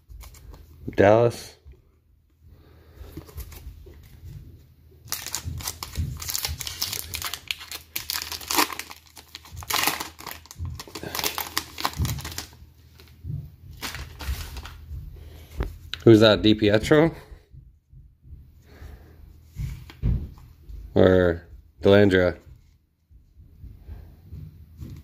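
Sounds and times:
foil wrapper crinkling: 0:05.0 - 0:13.1, 0:13.8 - 0:14.9.

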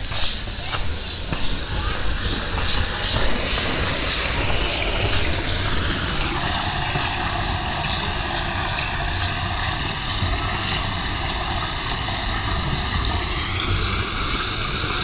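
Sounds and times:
crunching footsteps: 0:00.0 - 0:07.2.

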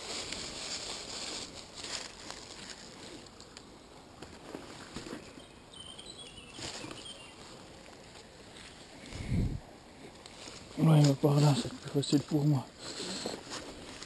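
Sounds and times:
faint high chirps: 0:05.2 - 0:07.4.

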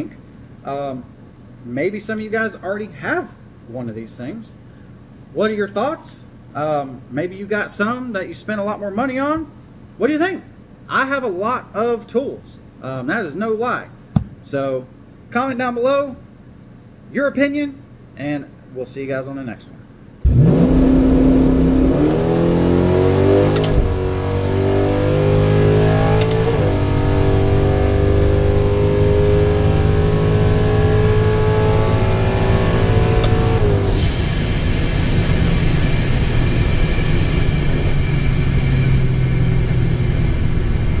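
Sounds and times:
high whine: 0:20.2 - 0:41.0
truck engine at full throttle: 0:20.2 - 0:41.0.

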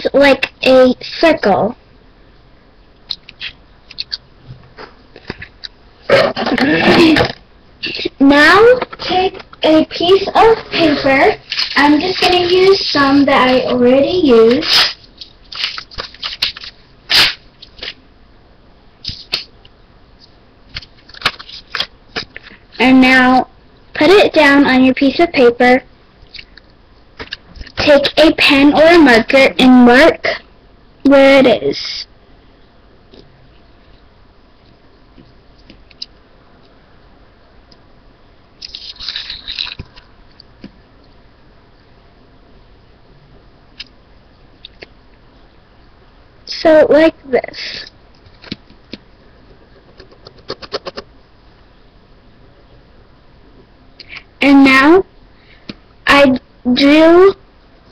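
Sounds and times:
paper rustling: 0:10.8 - 0:18.0, 0:20.7 - 0:22.6.

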